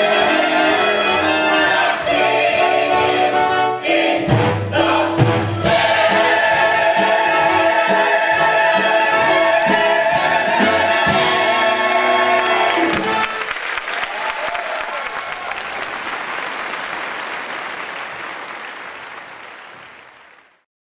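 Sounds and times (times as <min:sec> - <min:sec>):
audience applauding: 0:11.1 - 0:20.6.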